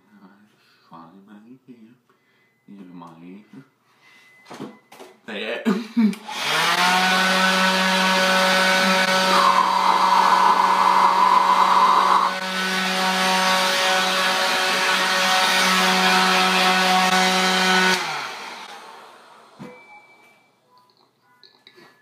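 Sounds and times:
leaf blower running: 6.2s - 19.6s
loud rushing hiss: 9.1s - 12.4s.

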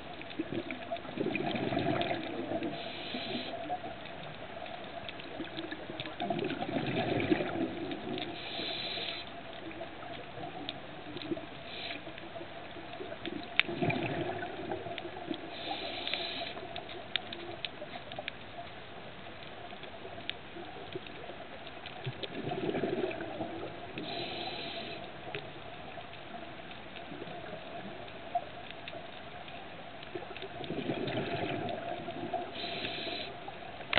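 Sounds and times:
faint clicks: 0.0s - 33.9s
bubbly rush of exhaled air: 0.4s - 3.5s, 6.2s - 8.2s, 13.7s - 15.2s, 22.3s - 24.2s, 30.6s - 32.7s
regulator inhalation hiss: 2.7s - 3.8s, 8.3s - 9.3s, 11.6s - 12.2s, 15.4s - 16.7s, 24.0s - 25.1s, 32.5s - 33.4s.

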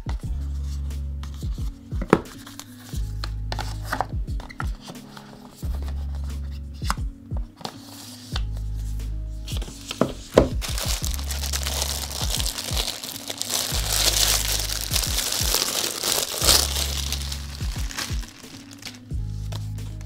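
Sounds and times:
background music with low bass: 0.0s - 20.0s
packaging crinkling: 10.6s - 19.1s.

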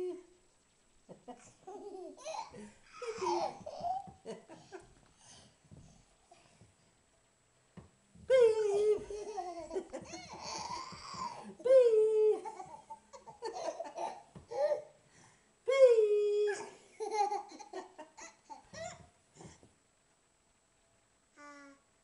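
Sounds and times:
toddler laughing: 1.6s - 4.3s, 8.7s - 11.5s, 16.6s - 19.1s.

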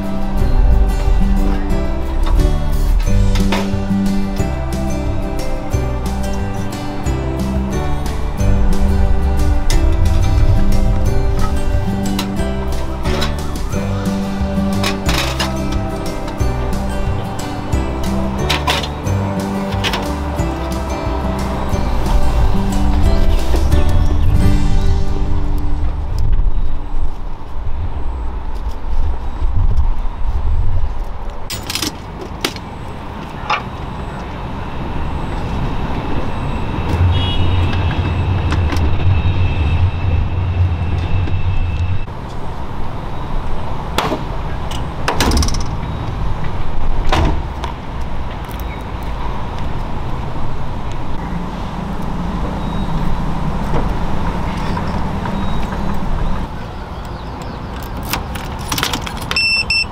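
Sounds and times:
low vehicle rumble: 0.0s - 57.4s
vehicle doors clunking shut: 43.9s - 45.9s, 47.0s - 47.7s.

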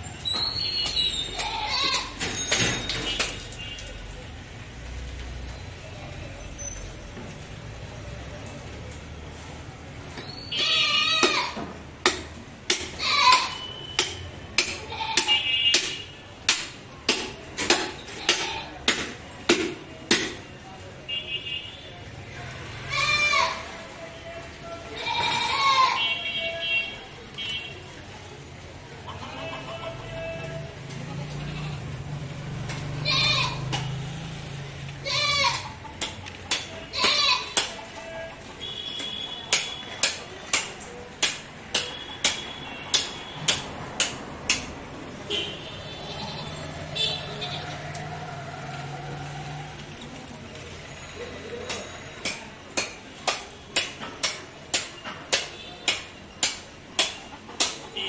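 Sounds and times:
cleaver chopping meat: 12.0s - 20.4s, 39.5s - 44.8s, 51.7s - 57.9s.

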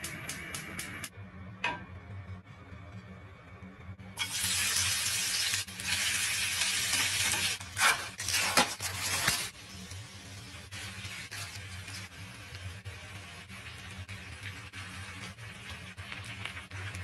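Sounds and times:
potato sizzling in hot oil: 4.2s - 17.0s.

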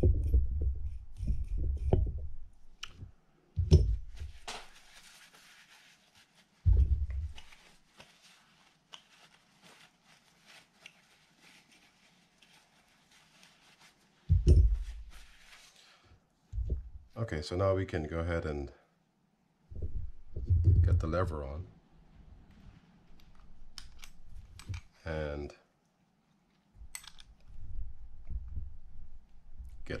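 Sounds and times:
paper towel rustling: 3.9s - 16.0s.

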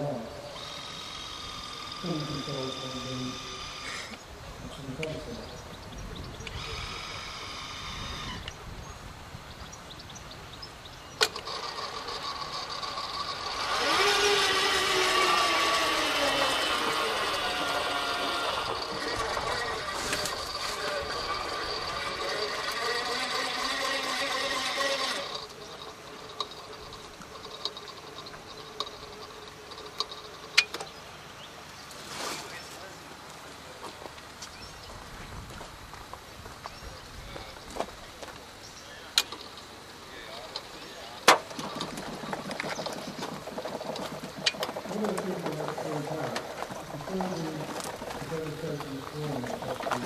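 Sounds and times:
robot arm motors whining: 0.0s - 4.2s, 6.2s - 8.6s, 11.2s - 30.7s.

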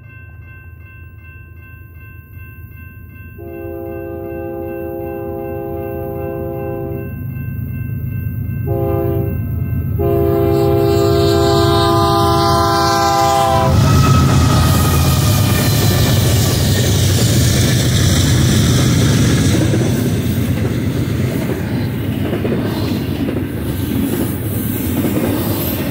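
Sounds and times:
crossing bell ringing: 0.0s - 22.3s
diesel locomotive horn blasts: 3.4s - 7.2s, 8.6s - 16.5s
locomotive rumble: 8.0s - 25.9s.

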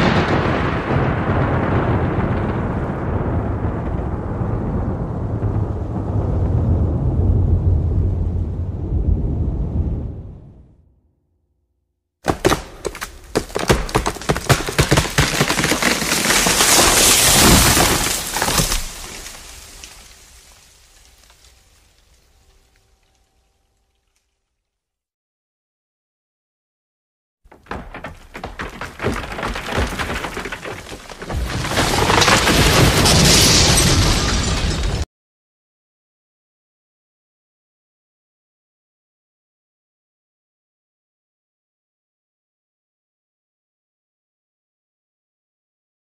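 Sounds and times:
thunderclap: 0.0s - 10.8s.

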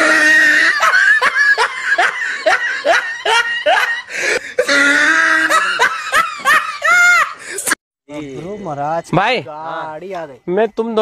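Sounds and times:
person laughing loudly: 0.0s - 7.8s.

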